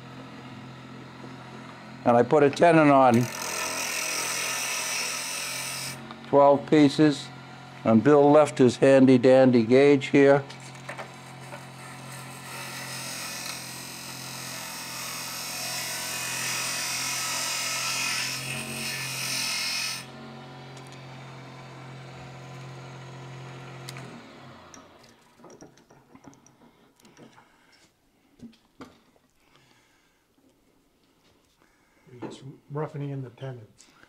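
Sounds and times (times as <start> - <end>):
lathe motor hum: 0.0 - 25.0
tool scraping spinning wood: 0.7 - 20.2.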